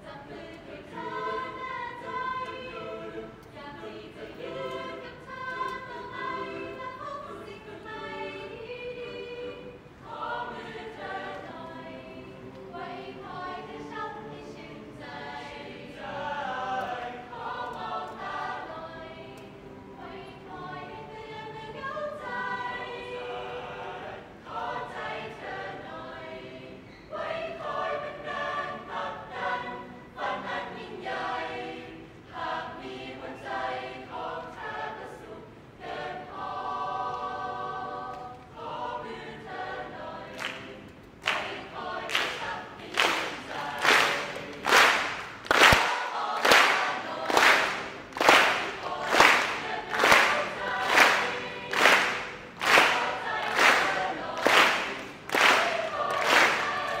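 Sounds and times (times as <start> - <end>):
choir singing unaccompanied: 0.0 - 57.0
rhythmic hand claps: 40.3 - 57.0.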